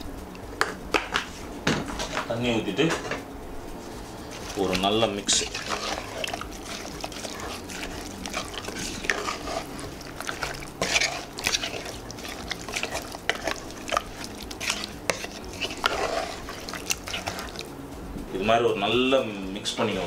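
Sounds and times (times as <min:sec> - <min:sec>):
wooden spoon scraping a pot: 0:03.8 - 0:17.7.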